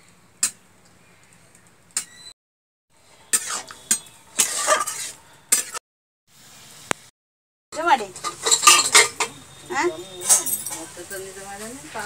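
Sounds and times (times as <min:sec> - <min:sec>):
metal spatula scraping pan: 0:03.1 - 0:05.8, 0:08.1 - 0:09.5.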